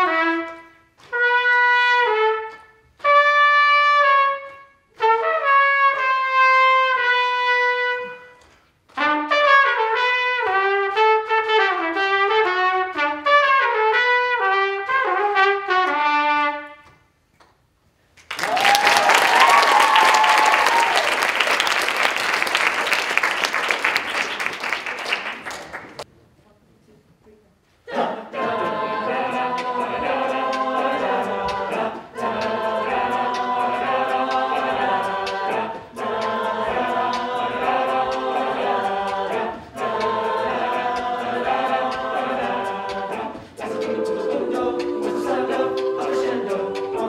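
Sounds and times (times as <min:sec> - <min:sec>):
solo trumpet: 0:00.0 - 0:17.1
audience applause and cheering: 0:18.2 - 0:26.0
person whooping: 0:18.4 - 0:21.3.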